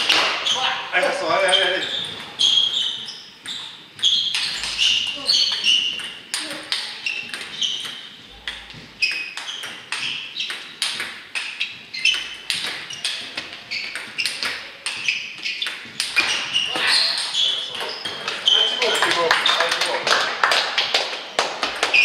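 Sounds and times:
table tennis ball hits: 0.0s - 0.4s, 3.4s - 16.6s, 20.7s - 22.0s.

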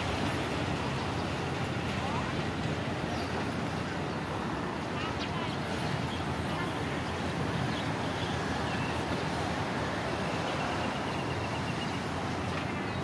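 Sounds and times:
diesel train rumbling: 0.0s - 13.0s.

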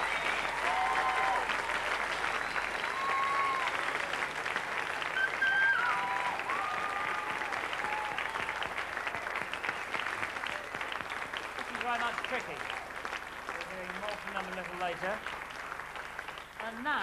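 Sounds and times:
audience cheering: 0.0s - 11.1s
audience applauding: 0.0s - 17.0s.

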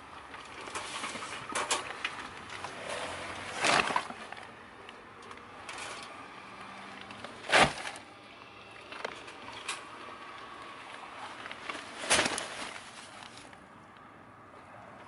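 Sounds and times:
bags knocking and rustling: 2.6s - 4.4s, 7.2s - 8.1s, 11.4s - 13.5s
bags thudding in car trunk: 3.4s - 4.2s, 7.4s - 8.0s, 11.7s - 13.2s.

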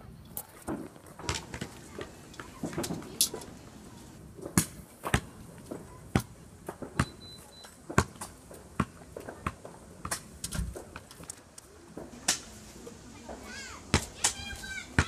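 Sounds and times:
fireworks bangs and pops: 0.6s - 3.4s.

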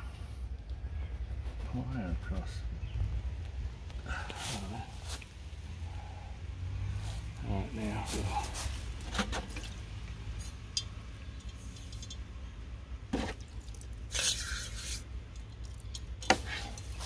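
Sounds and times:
hissing scrape: 14.1s - 15.1s.

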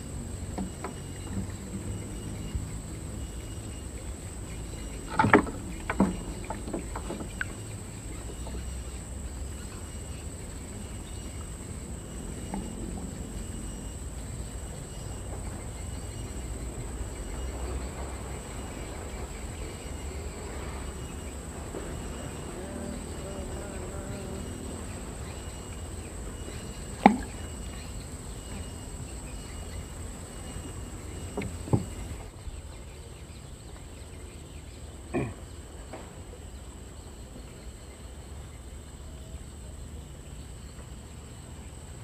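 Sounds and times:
high insect buzz: 0.0s - 42.0s
knocks and clatters in wooden boat: 0.3s - 32.4s.

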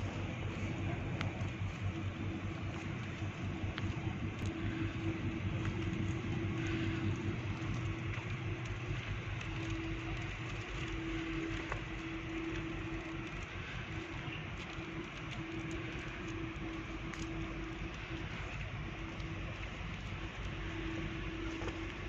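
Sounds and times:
ship engines rumbling: 0.0s - 22.0s
steady engine hum: 0.0s - 22.0s.

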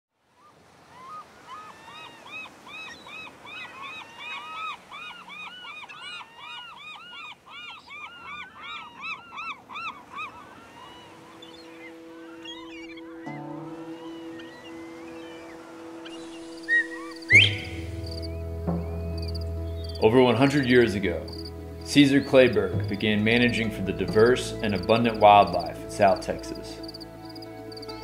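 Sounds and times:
flock of birds calling: 0.8s - 28.0s
soft music with held tones: 11.2s - 28.0s.

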